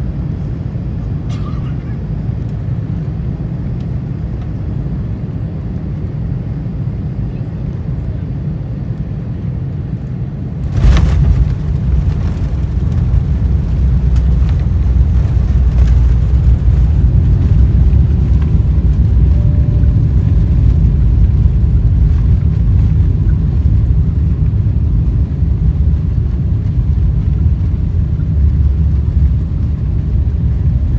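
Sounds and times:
low rumble of airplane rolling: 0:00.0 - 0:30.9
airplane touching down jolt: 0:10.6 - 0:14.6.

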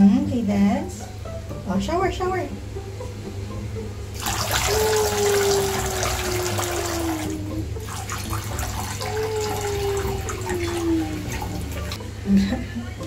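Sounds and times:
shower water splashing into bathtub: 0:04.1 - 0:12.0.

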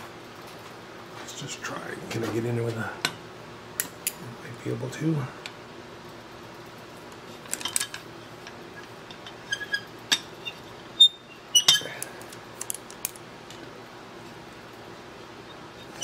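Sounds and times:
steady low hum: 0:00.0 - 0:16.0
steel parts clinking: 0:07.4 - 0:10.7.

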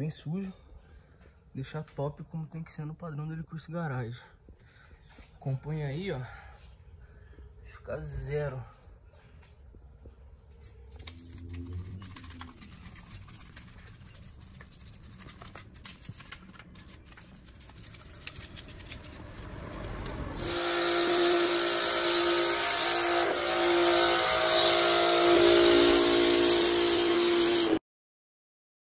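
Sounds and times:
brush scrubbing a wheel: 0:10.7 - 0:27.8
pressure washer spraying: 0:17.5 - 0:27.8.

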